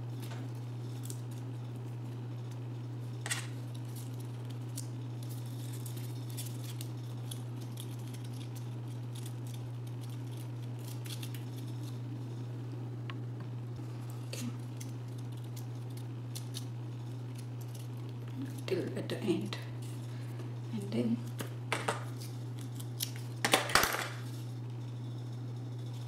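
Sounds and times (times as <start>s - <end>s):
steady low hum: 0.0s - 26.0s
cardstock crinkling and ticking: 3.3s - 12.0s, 14.3s - 20.0s.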